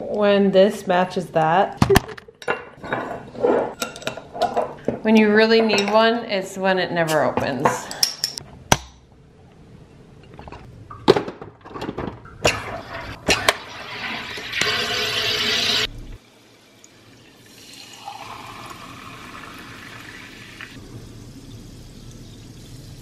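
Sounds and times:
water fizzing poured into glass: 17.4 - 20.8.

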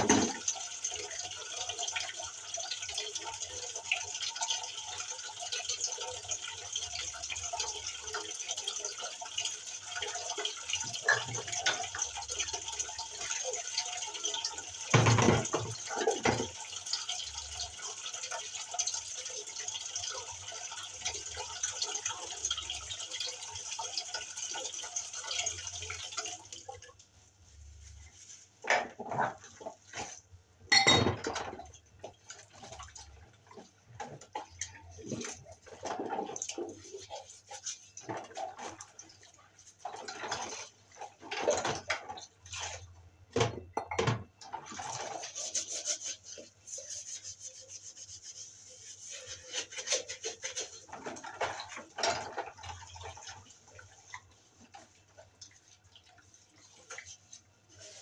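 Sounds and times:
dishes knocking in basin: 0.0 - 0.5, 14.9 - 16.6, 30.7 - 31.7, 43.3 - 44.4
tap water running: 0.0 - 58.0.

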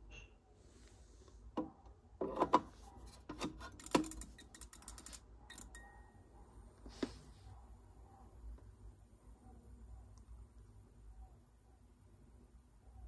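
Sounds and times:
faint high whine: 5.5 - 13.0.

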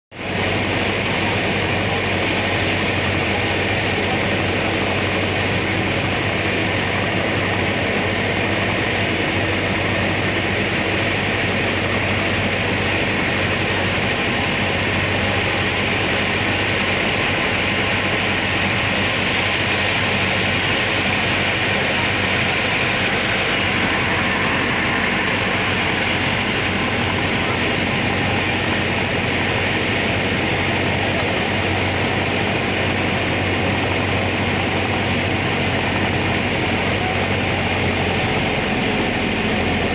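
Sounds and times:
ferry engine drone: 0.1 - 39.9
even rushing noise: 17.5 - 39.6.

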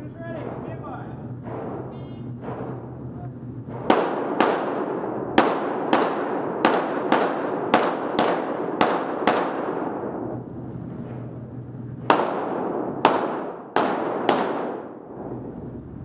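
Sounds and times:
pistol shots echoing indoors: 3.7 - 15.8.

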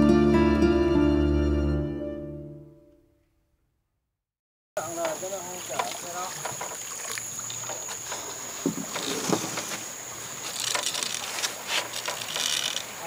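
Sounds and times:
water washing against hull: 4.8 - 13.0.

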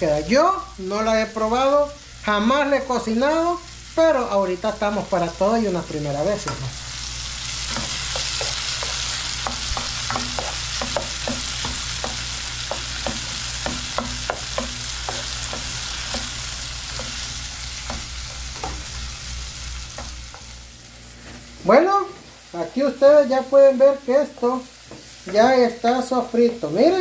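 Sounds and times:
vegetables sizzling in a frying pan: 0.0 - 27.0
spatula tapping and scraping pan: 7.7 - 18.9, 19.9 - 20.5, 24.4 - 26.6.

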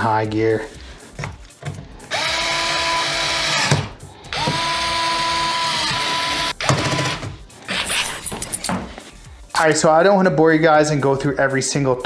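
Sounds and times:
electric screwdriver motor whirring: 2.1 - 8.0.

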